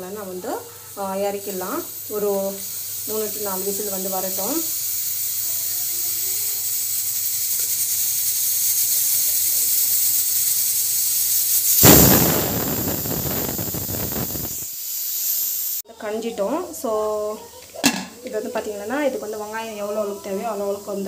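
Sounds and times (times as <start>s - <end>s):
pressure cooker whistling: 0.0s - 15.8s
steady hiss: 0.0s - 21.0s.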